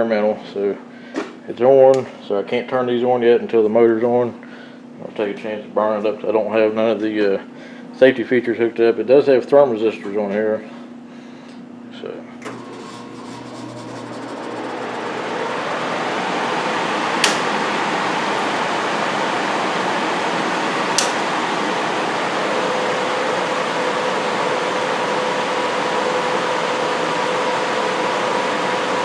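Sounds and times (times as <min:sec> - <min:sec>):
furnace blower rushing air: 0:12.4 - 0:29.0
circuit breaker clicks: 0:17.2 - 0:17.6, 0:20.9 - 0:21.3.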